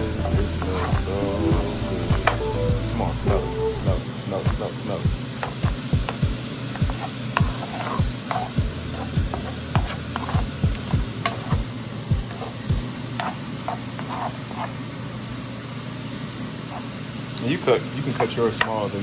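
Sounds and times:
vegetables sizzling in a pan: 0.0s - 19.0s
wooden spoon stirring knocks: 5.4s - 11.6s, 13.2s - 14.7s.

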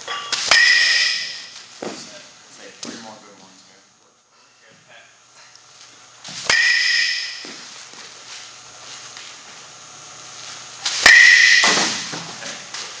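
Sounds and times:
baseball hitting metal bat: 0.1s - 2.0s, 6.4s - 7.7s, 10.8s - 12.3s.

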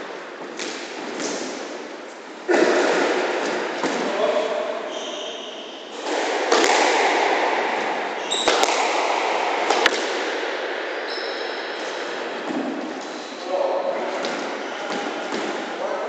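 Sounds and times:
squash ball hits: 6.0s - 10.7s.

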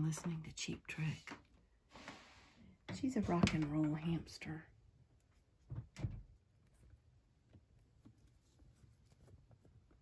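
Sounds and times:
rustling: 6.4s - 10.0s.

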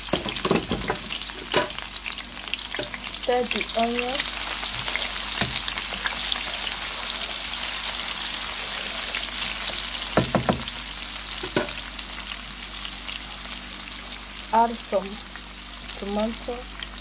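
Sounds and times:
onions sizzling in oil: 0.0s - 17.0s
wooden spoon knocking pan: 0.1s - 1.8s, 10.2s - 10.7s, 11.4s - 11.8s.

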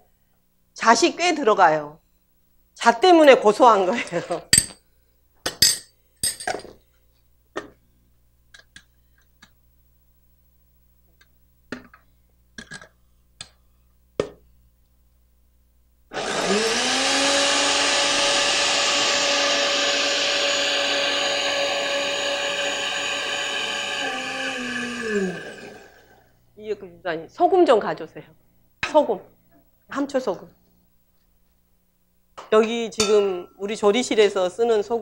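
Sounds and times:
blender grinding: 16.1s - 26.3s.

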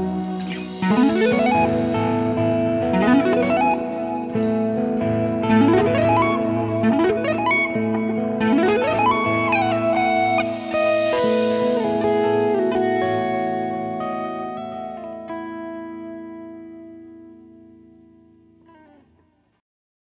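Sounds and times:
backing track: 0.0s - 15.2s
electric guitar tapping: 0.0s - 17.7s.

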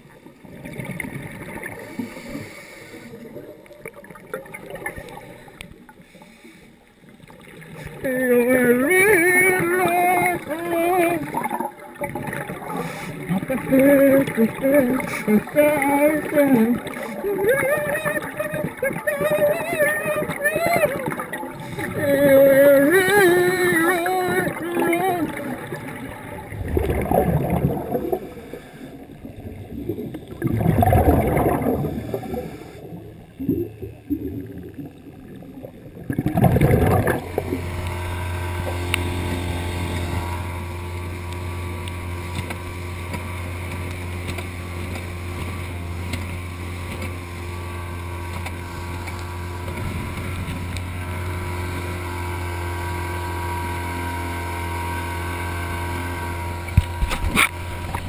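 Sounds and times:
underwater exhaled breath bubbling: 0.0s - 40.8s
outboard motor running: 0.0s - 58.0s
water rushing past hull: 0.0s - 58.0s.

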